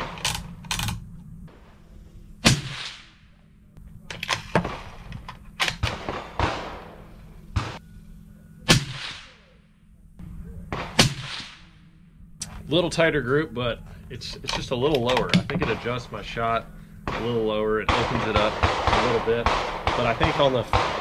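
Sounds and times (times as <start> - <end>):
suppressed rifle shots: 2.4 - 3.4, 4.2 - 7.8, 8.6 - 9.5, 10.2 - 12.7, 17.0 - 21.0
sharp clicks and knocks: 14.3 - 15.9.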